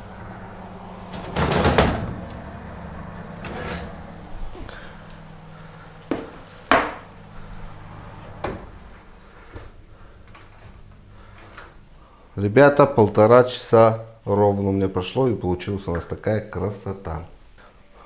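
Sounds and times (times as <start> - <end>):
oven door rattling scrape: 0.0 - 4.3
steady low hum: 0.0 - 15.7
baking tray knocking on board: 6.1 - 7.0.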